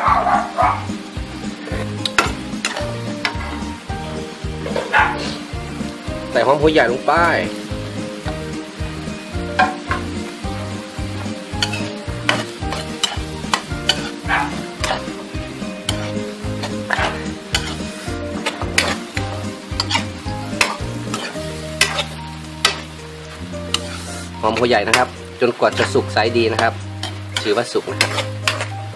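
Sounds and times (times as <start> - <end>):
food sizzling in a wok: 0.0 - 28.9
metal ladle scraping a wok: 1.6 - 3.8, 4.6 - 5.5, 11.2 - 28.8.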